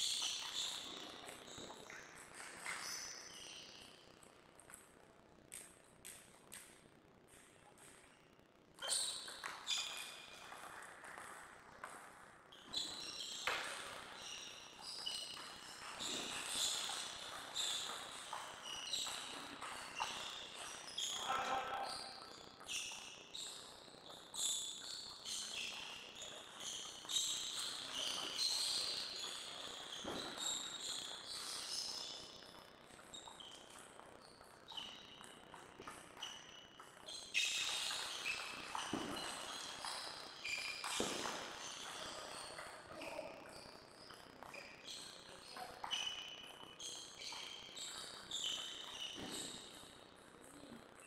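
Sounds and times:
table tennis balls ticking: 22.0s - 51.0s.

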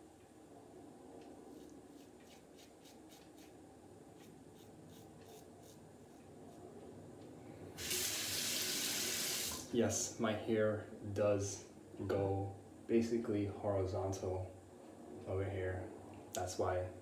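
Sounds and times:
razor scraping stubble: 1.5s - 3.6s, 4.2s - 6.3s
tap water running: 7.8s - 9.7s.

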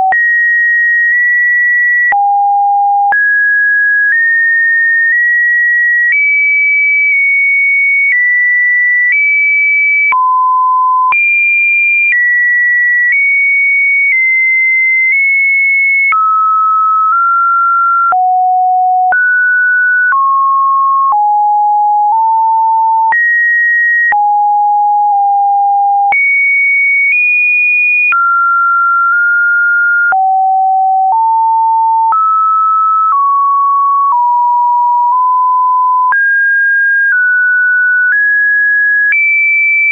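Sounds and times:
sine wave test tones: 28.0s - 36.3s.

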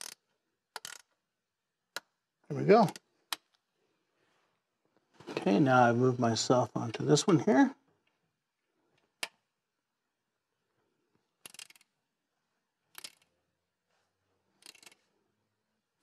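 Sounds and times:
socket ratchet clicking: 0.8s - 1.1s, 11.4s - 11.9s, 12.9s - 13.3s.

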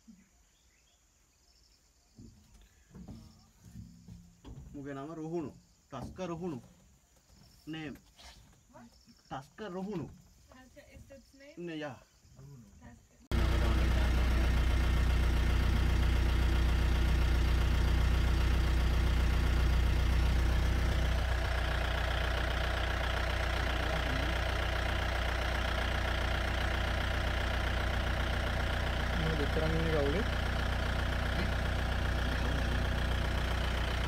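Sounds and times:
jeep engine running: 13.3s - 34.0s.

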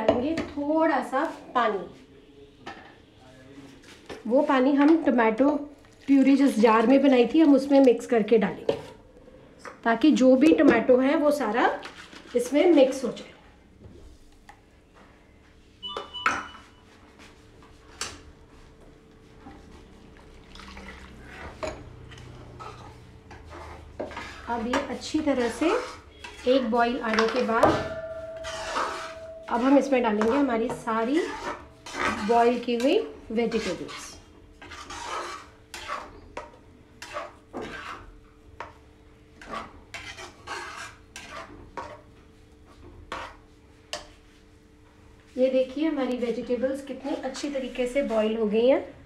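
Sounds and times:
water pouring into pan: 20.4s - 21.4s
metal spatula scraping pan: 21.2s - 38.8s, 39.4s - 42.1s, 43.1s - 44.2s
steel jar and lid clinking: 27.3s - 30.4s.

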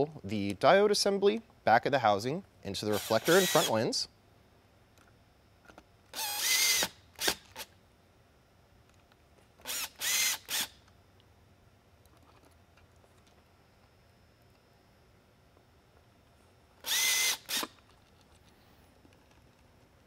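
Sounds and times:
power screwdriver whining: 2.9s - 3.8s, 6.1s - 7.7s, 9.6s - 10.8s, 16.8s - 17.8s.

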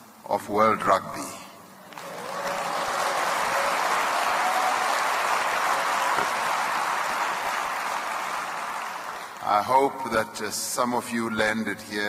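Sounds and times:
audience applauding: 1.9s - 9.4s.

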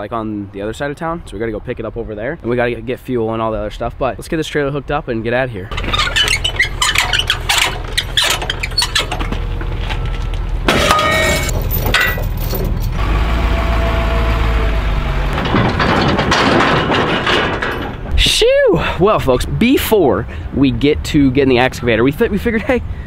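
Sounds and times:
metal clanks of trailer hitch: 5.7s - 13.0s, 15.3s - 18.1s.

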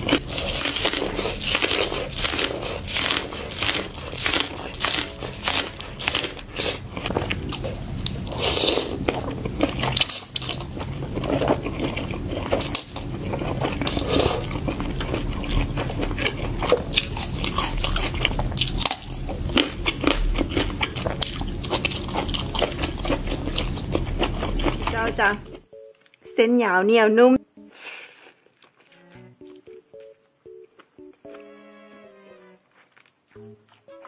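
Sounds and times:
crunchy bites and chewing: 0.0s - 26.2s.

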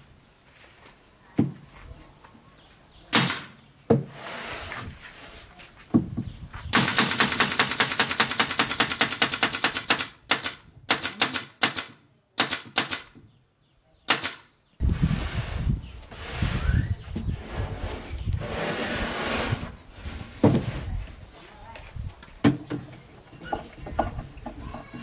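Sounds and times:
pneumatic nailer firing nails: 3.2s - 3.6s, 6.7s - 13.2s, 14.1s - 14.5s.

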